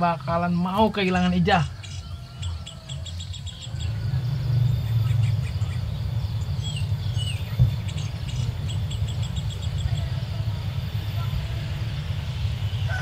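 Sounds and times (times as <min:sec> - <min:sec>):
bird chirps: 0:00.0 - 0:13.0
insects chirping: 0:00.0 - 0:13.0
low outdoor rumble: 0:00.0 - 0:13.0
thump: 0:07.6 - 0:07.8.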